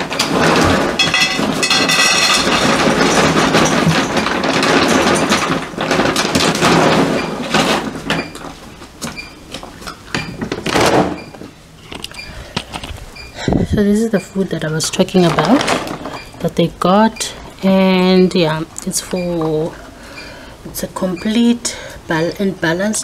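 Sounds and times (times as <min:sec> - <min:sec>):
plastic bag rustling: 0:00.0 - 0:09.1, 0:14.8 - 0:16.5.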